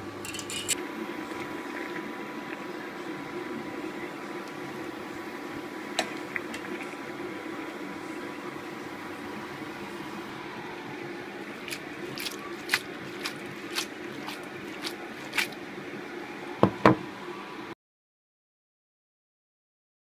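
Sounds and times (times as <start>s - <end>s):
steady hum: 0.0s - 17.7s
pasta squelching in sauce: 11.4s - 15.7s.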